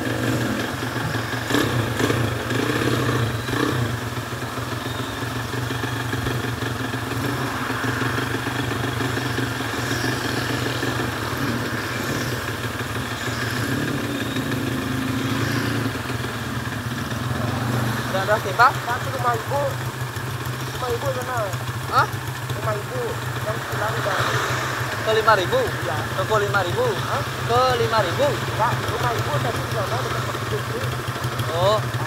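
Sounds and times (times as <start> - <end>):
motorcycle engine running: 0.0 - 32.0.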